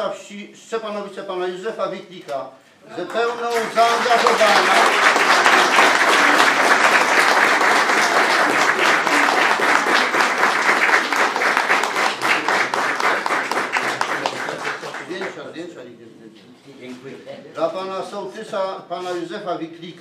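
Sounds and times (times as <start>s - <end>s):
audience applause: 3.2s - 15.4s.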